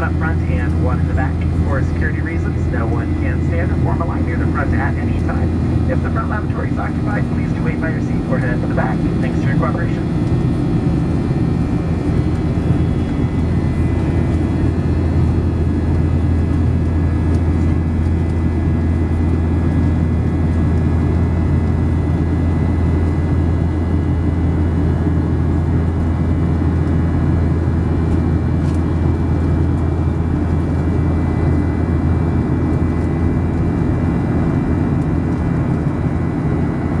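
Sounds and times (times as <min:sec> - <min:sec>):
airplane cabin drone: 0:00.0 - 0:37.0
faint whining tones: 0:01.4 - 0:18.4.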